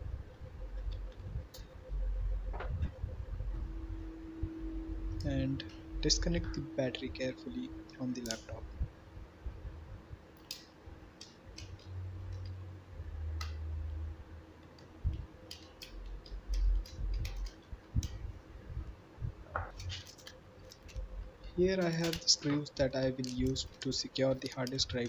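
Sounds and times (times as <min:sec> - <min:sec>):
low rumbling handling bumps: 0:00.8 - 0:06.6.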